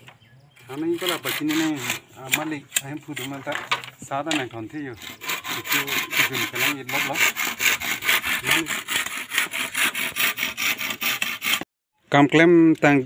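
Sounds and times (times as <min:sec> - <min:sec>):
hand saw cutting bamboo: 0:00.6 - 0:11.7.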